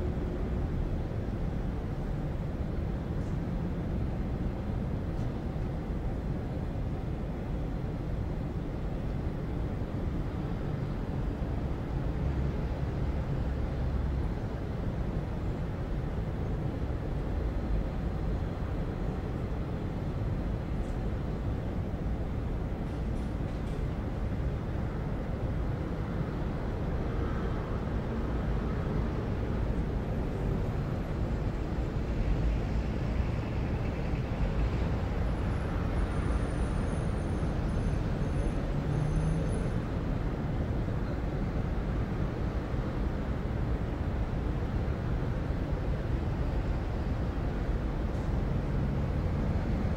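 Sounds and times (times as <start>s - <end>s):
traffic rumble: 0.0s - 49.9s.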